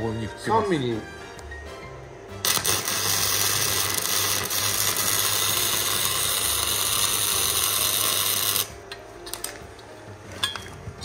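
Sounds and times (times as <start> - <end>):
welder arc crackling and sizzling: 2.3 - 9.9.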